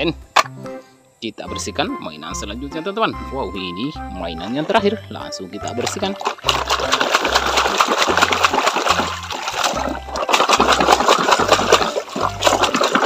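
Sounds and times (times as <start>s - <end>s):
water splashing and sloshing: 4.4s - 13.0s.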